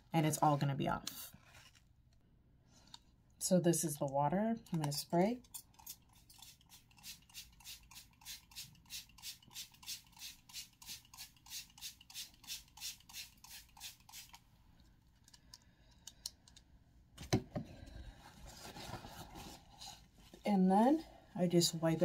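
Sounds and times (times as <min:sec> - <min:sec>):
spray bottle squirting: 0:05.7 - 0:14.4.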